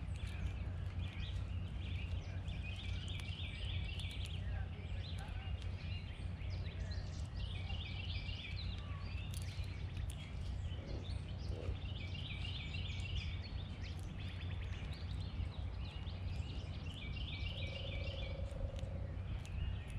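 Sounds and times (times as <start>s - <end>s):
low outdoor rumble: 0.0s - 19.9s
songbird singing: 0.0s - 19.9s
faint ticks: 18.2s - 19.5s.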